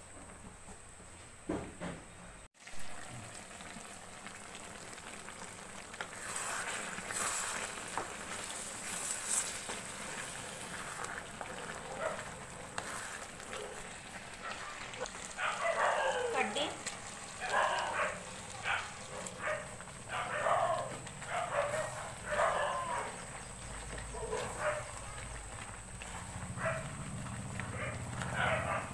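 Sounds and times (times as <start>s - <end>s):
curry sizzling in a pan: 2.6s - 28.9s
spatula scraping a pan: 6.0s - 13.9s.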